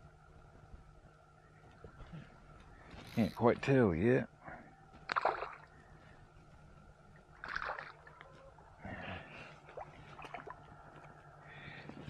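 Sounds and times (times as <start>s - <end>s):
fish splashing in water: 5.1s - 5.8s, 7.3s - 8.2s.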